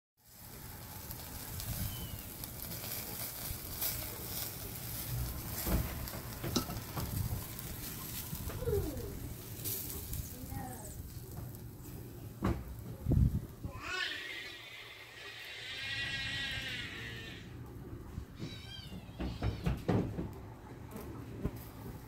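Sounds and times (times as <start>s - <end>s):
fat sizzling: 0.2s - 17.7s
charcoal embers crackling: 0.2s - 22.0s.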